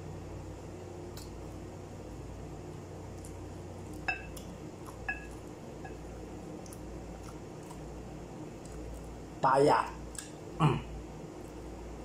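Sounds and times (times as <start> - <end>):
steady low hum: 0.0 - 12.0
glass bowl clinking: 4.0 - 4.4, 5.0 - 6.0.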